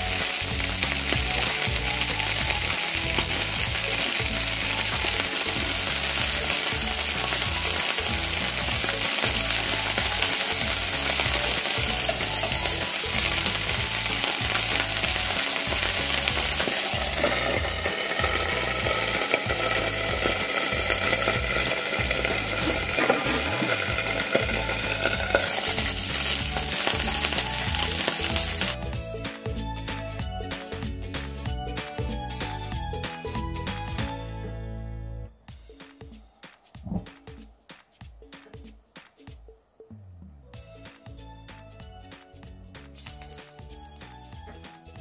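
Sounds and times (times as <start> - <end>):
fish sizzling in hot oil: 0.0 - 28.8, 43.0 - 44.5.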